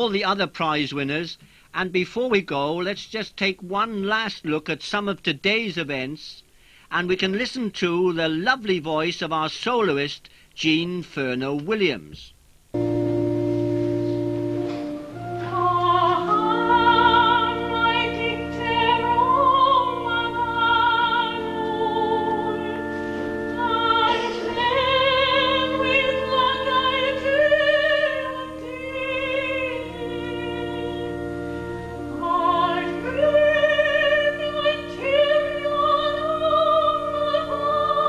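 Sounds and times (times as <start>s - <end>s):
sustained accompanying chords: 12.7s - 38.0s
woman singing classical solo: 15.3s - 38.0s.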